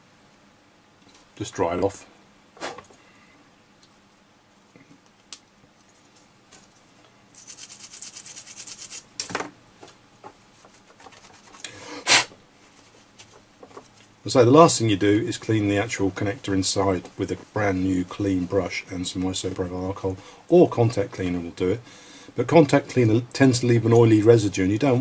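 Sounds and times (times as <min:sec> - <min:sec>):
cloth rubbing circuit board: 0:07.4 - 0:09.1
short rustles and knocks: 0:12.6 - 0:14.1.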